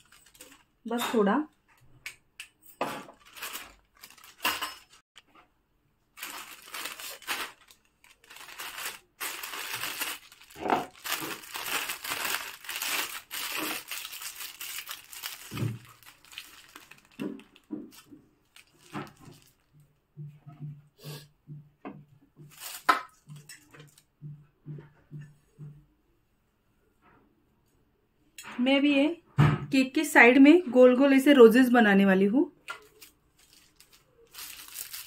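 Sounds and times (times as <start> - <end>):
plastic bag crinkling: 0.0 - 0.8, 3.0 - 5.0, 6.1 - 19.8, 22.5 - 24.0, 32.7 - 35.0.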